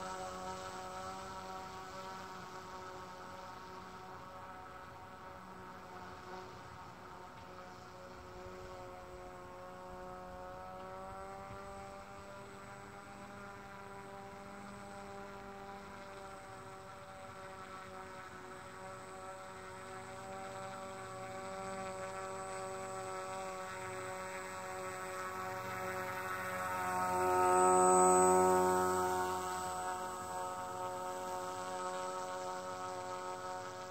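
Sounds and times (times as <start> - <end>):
fan boat motor whining: 0.0 - 33.9.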